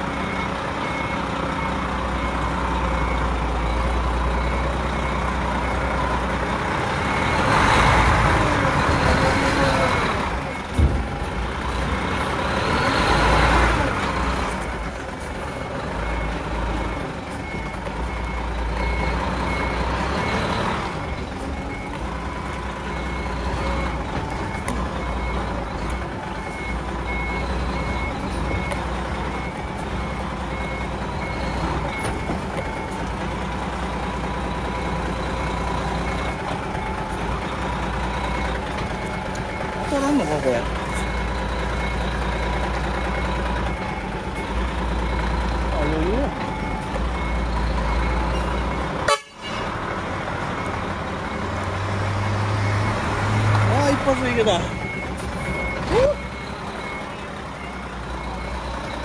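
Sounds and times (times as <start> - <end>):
truck diesel engine revving: 0.0 - 59.0
reverse warning beeper: 52.5 - 59.0.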